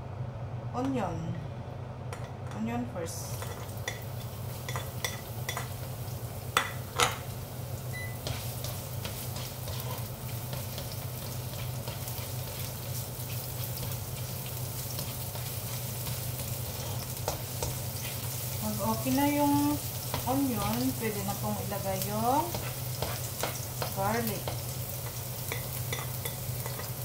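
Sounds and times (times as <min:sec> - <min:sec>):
onion sizzling in hot oil: 0:03.0 - 0:27.0
spatula clicking and scraping: 0:08.2 - 0:18.4, 0:22.4 - 0:27.0.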